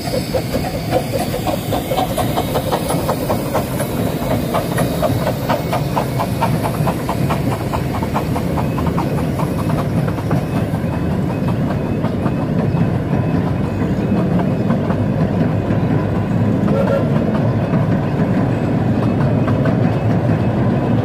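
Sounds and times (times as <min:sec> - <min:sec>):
steam hiss: 0:00.0 - 0:11.4
steam locomotive chuffing: 0:00.0 - 0:21.0
carriage wheels clattering on rails: 0:00.1 - 0:21.0.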